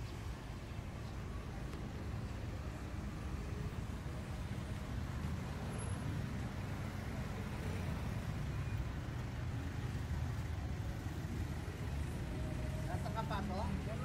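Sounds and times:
low rumble of vehicles: 0.0 - 14.0.

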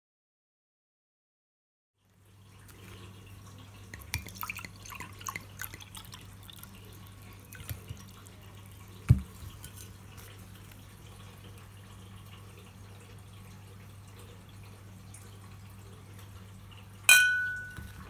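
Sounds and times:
wine pouring into glass: 3.4 - 11.3.

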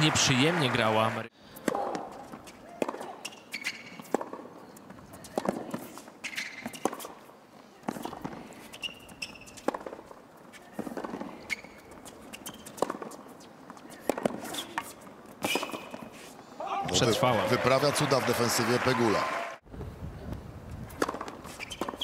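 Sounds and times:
racket striking tennis ball: 1.6 - 4.5, 5.2 - 7.2, 7.8 - 16.1, 20.9 - 22.0
short high shoe squeaks: 3.1 - 7.1, 8.0 - 9.8, 10.5 - 16.3, 21.4 - 22.0.

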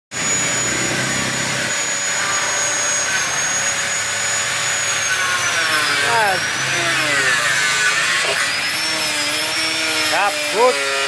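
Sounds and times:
angle grinder cutting metal: 0.1 - 11.0.

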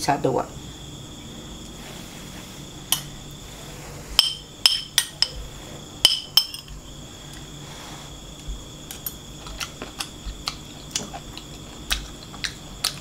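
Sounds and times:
spoon clinking on ceramic bowl: 6.0 - 6.7.

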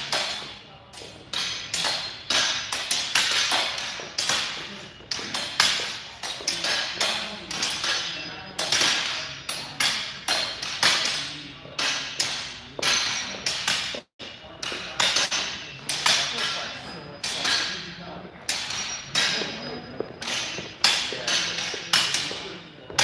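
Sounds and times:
sharp knocks echoing in a hall: 0.0 - 23.0.

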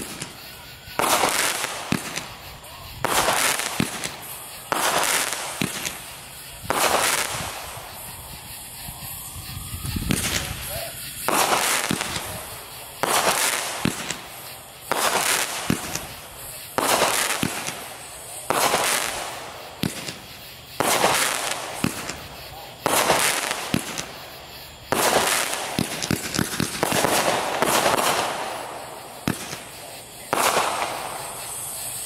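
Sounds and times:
firework bursts: 0.0 - 32.0
firework launch thumps: 3.0 - 8.1, 19.8 - 24.1, 24.9 - 28.4.

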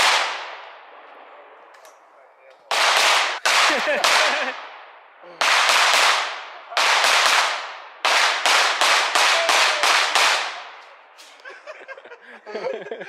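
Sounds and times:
firecrackers bursting: 2.7 - 11.4.

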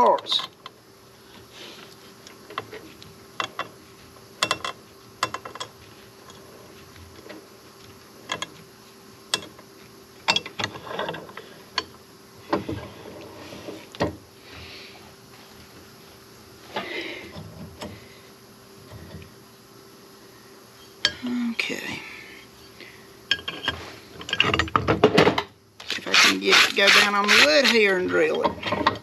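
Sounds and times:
faint steady hum: 0.0 - 29.0
metal parts clicking and clanking: 4.4 - 5.7, 10.3 - 11.9, 23.3 - 29.0.

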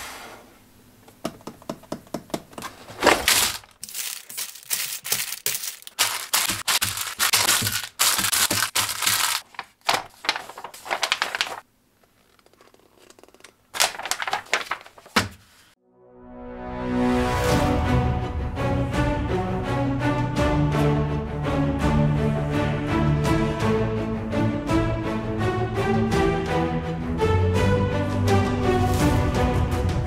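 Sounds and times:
booklet pages flipping: 2.3 - 15.8
plastic bags crinkling: 2.6 - 15.4.

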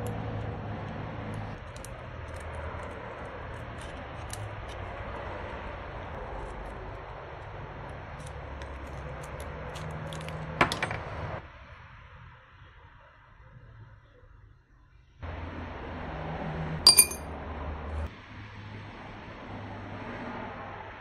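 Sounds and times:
screwdriver scraping metal parts: 16.9 - 17.2.

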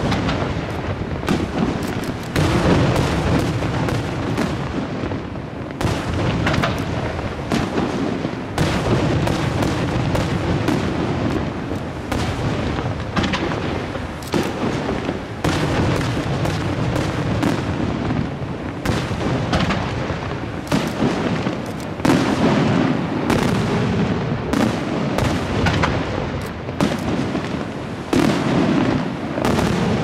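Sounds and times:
firework shells bursting: 0.0 - 4.9, 5.8 - 7.9, 8.5 - 17.7, 18.8 - 22.7, 24.6 - 27.6.

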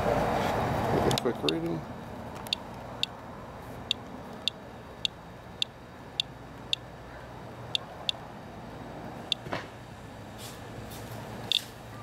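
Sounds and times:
geiger counter clicking: 2.4 - 2.6.

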